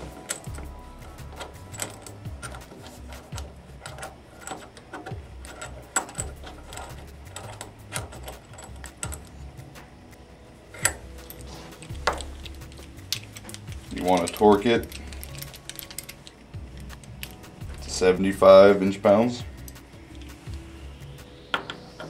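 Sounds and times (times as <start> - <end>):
vise metallic clicks and knocks: 0.0 - 9.4, 10.8 - 18.0.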